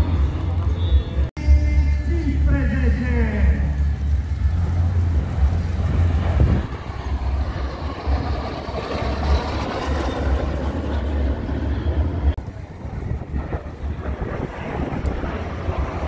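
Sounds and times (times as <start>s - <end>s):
jet fighters flying past: 2.1s - 16.0s.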